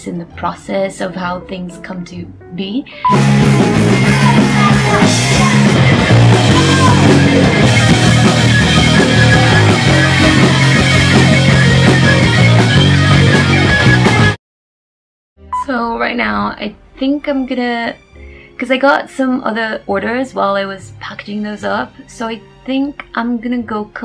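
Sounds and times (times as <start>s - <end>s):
punk rock band playing: 3.0s - 14.4s.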